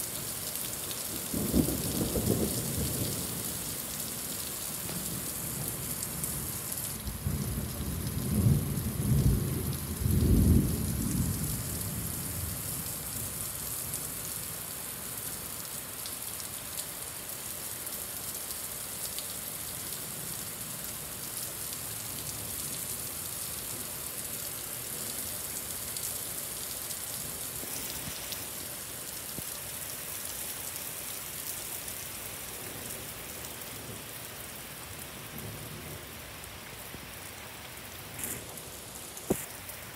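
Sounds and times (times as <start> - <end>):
heavy rain pouring: 0.0 - 39.9
thunder rumbling: 7.1 - 12.2.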